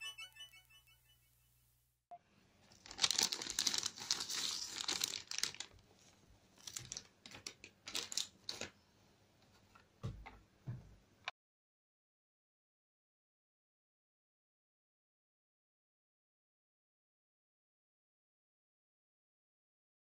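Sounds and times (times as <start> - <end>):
crackling handling noise: 2.6 - 8.8.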